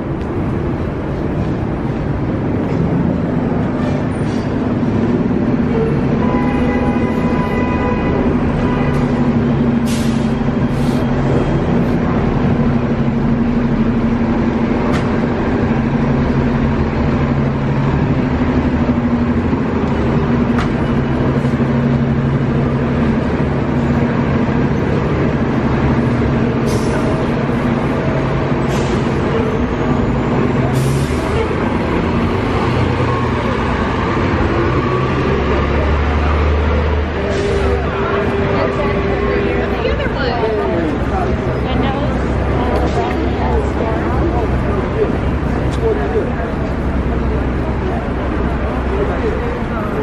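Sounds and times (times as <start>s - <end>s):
street traffic rumble: 0.0s - 50.0s
short hisses: 9.8s - 11.1s.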